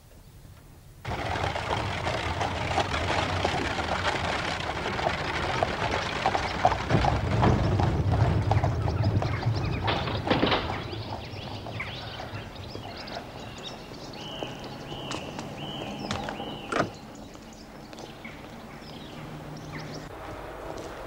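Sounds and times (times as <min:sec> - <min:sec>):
carriage wheels rattling and crunching: 0:01.0 - 0:17.4
hooves clopping: 0:01.0 - 0:21.0
low rumble: 0:01.1 - 0:21.0.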